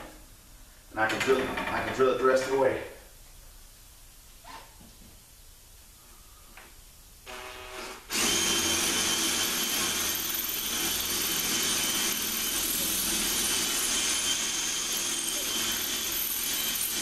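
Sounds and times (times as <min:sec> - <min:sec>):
drill boring into brick: 0:07.3 - 0:17.0.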